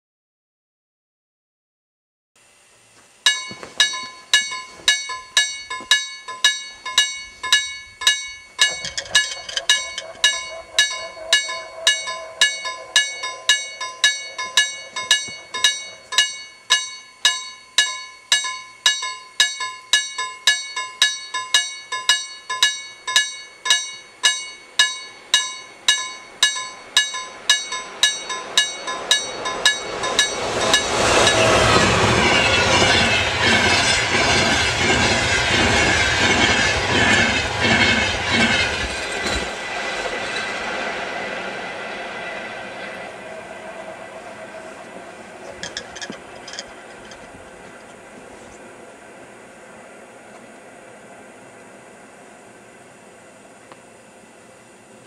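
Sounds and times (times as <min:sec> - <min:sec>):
crossing bell ringing: 0:03.3 - 0:40.7, 0:42.8 - 0:47.8
approaching train noise: 0:03.3 - 0:55.0.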